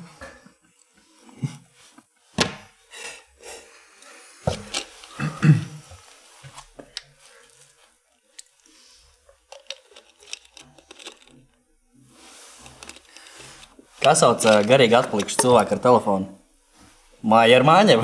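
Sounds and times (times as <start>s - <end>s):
plastic water bottle handled: 4.5s - 5.3s, 9.2s - 11.5s, 12.4s - 15.9s.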